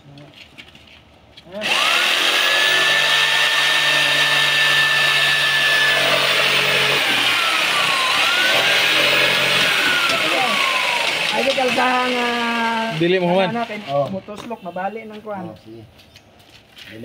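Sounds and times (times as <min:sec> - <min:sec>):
electric jigsaw cutting: 0:01.6 - 0:14.5.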